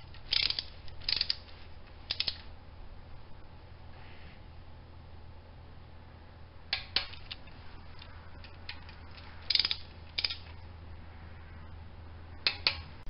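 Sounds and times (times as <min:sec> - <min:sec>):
socket ratchet clicking: 0:00.2 - 0:02.5, 0:08.4 - 0:10.6.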